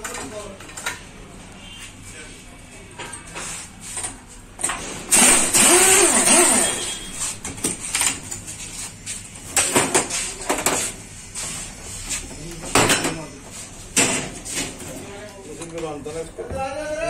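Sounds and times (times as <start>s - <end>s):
pneumatic impact wrench whirring: 4.6s - 7.2s.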